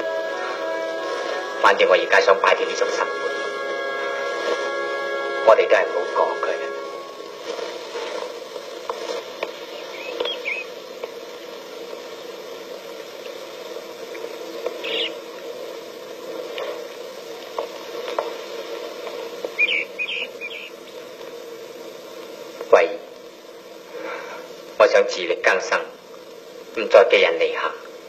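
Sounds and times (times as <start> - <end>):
film soundtrack hiss and crackle: 0.0 - 28.0
short high chirps: 19.6 - 20.7.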